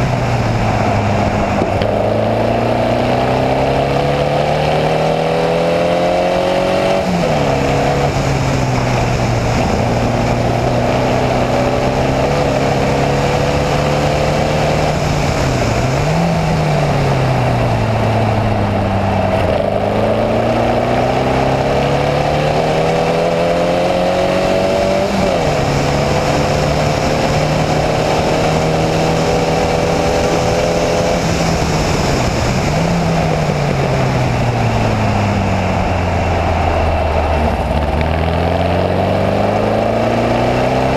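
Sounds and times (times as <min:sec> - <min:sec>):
racing engine revving: 0:00.0 - 0:40.9
wind and road noise: 0:00.0 - 0:40.9.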